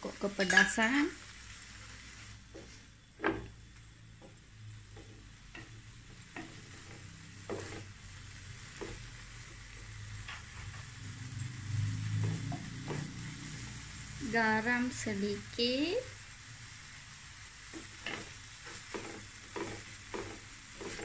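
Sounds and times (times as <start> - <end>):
food sizzling in a pan: 0.0 - 21.0
spatula tapping and scraping pan: 4.2 - 7.9, 8.6 - 10.6, 12.1 - 13.2, 17.7 - 21.0.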